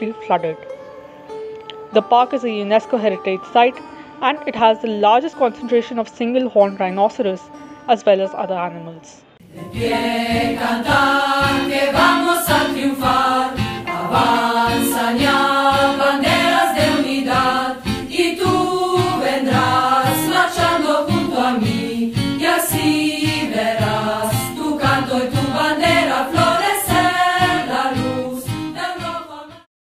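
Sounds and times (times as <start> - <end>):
group singing over a beat: 9.4 - 29.7.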